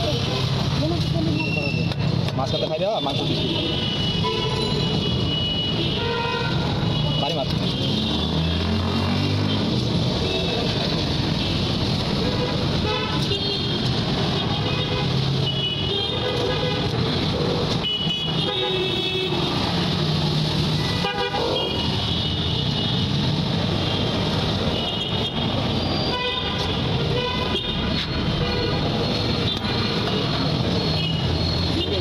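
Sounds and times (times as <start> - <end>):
vehicle horns tooting: 1.6 - 8.7, 17.8 - 19.6, 24.7 - 32.0
engines din: 7.4 - 12.7.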